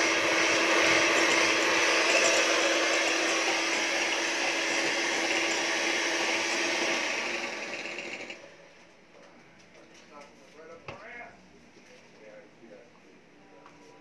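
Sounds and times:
electric hand mixer whirring: 0:00.0 - 0:08.4.

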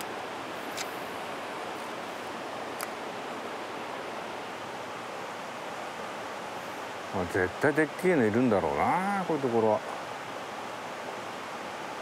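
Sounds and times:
stream water rushing: 0:00.0 - 0:12.0
faint sharp ticks: 0:02.8 - 0:03.0.

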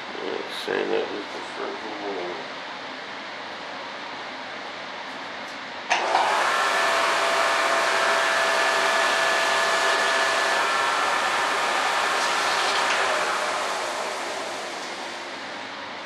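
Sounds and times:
blower switch click: 0:05.9 - 0:06.4
blower motor whirring: 0:05.9 - 0:16.0.

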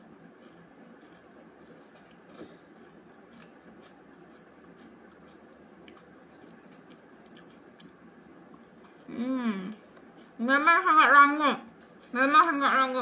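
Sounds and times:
chewing crisp cookie: 0:00.0 - 0:13.0.

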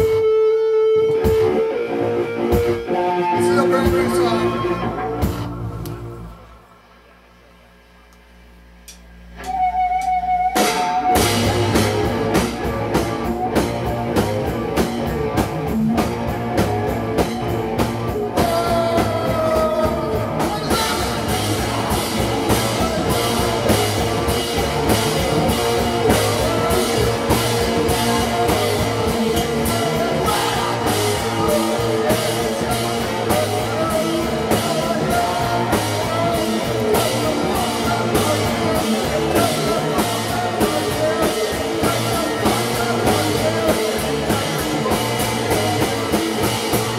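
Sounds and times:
rock band playing: 0:00.0 - 0:06.7, 0:09.4 - 0:46.9
dense drumming: 0:11.1 - 0:46.9.

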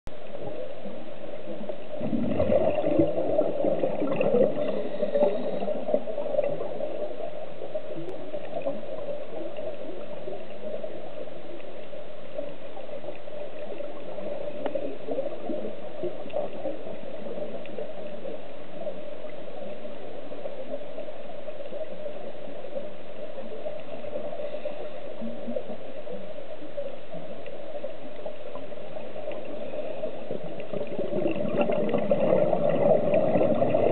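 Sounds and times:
steady underwater hum: 0:00.1 - 0:33.9
bubbling gurgles of exhaled breath: 0:00.2 - 0:11.4, 0:23.4 - 0:33.9.

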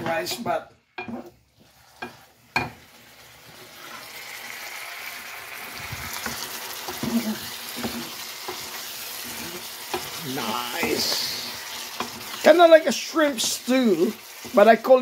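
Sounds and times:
food sizzling in a pan: 0:00.0 - 0:15.0
wooden spoon stirring: 0:05.8 - 0:15.0.

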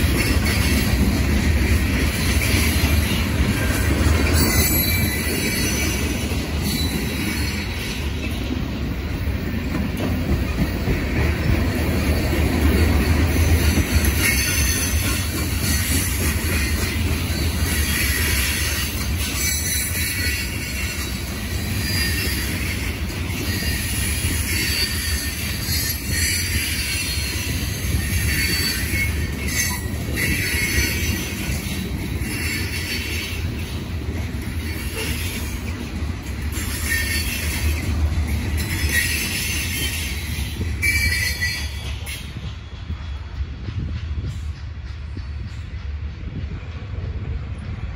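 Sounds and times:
train wheels rumbling on rail: 0:00.0 - 0:47.9
wheel squeals: 0:02.0 - 0:08.5, 0:11.9 - 0:33.7, 0:36.5 - 0:37.9, 0:38.5 - 0:42.3.

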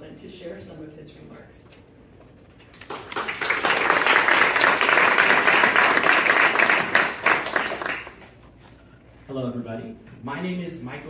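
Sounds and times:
audience applauding: 0:02.8 - 0:08.4.

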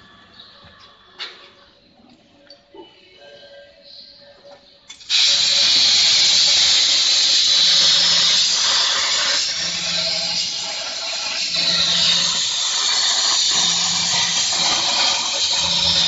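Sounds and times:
plasma torch arc click: 0:04.9 - 0:16.0
plasma torch cutting hiss: 0:04.9 - 0:16.0.

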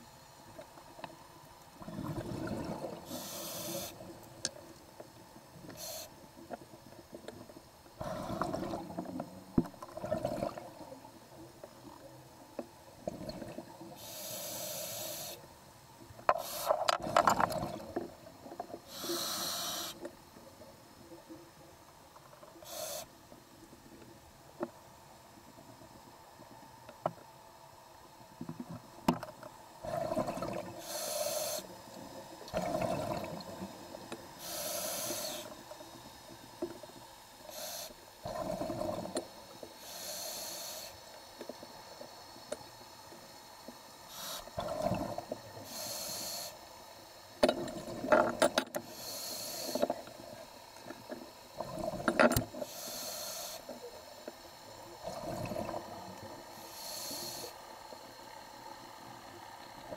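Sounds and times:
exhale bubbles gurgling: 0:01.8 - 0:04.4, 0:08.0 - 0:11.2, 0:12.9 - 0:14.1, 0:16.9 - 0:19.8, 0:29.8 - 0:36.5, 0:37.5 - 0:39.5, 0:44.1 - 0:46.5, 0:47.5 - 0:53.1, 0:53.7 - 0:59.9
air hissing through regulator: 0:03.1 - 0:04.0, 0:05.8 - 0:06.2, 0:14.0 - 0:15.4, 0:16.3 - 0:17.0, 0:18.8 - 0:20.1, 0:22.6 - 0:23.2, 0:30.8 - 0:32.1, 0:33.8 - 0:36.0, 0:37.4 - 0:39.1, 0:39.7 - 0:41.1, 0:44.0 - 0:44.9, 0:45.6 - 0:47.3, 0:48.8 - 0:50.4, 0:51.8 - 0:54.0, 0:55.1 - 0:58.0.

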